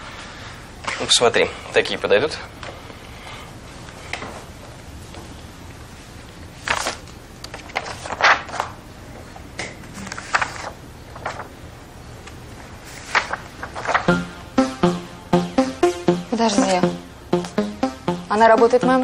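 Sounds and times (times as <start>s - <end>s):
photo prints rustling: 6.5s - 11.6s, 12.2s - 14.1s.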